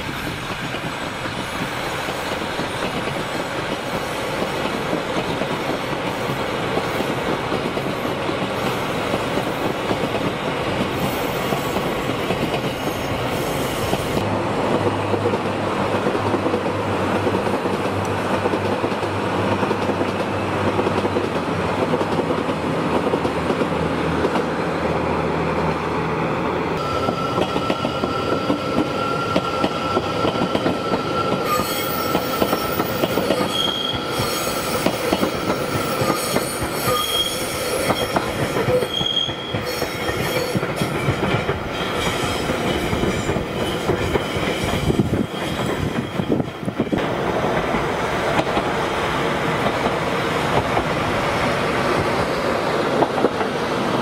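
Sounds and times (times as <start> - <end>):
train wheel and rail rumble: 0.0 - 54.0
train wheel squeal: 10.9 - 14.2, 26.8 - 46.8.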